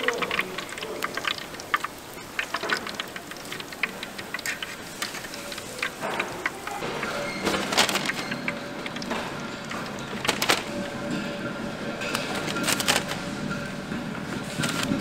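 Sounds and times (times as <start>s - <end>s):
oil sizzling in a deep fryer: 0.0s - 12.0s.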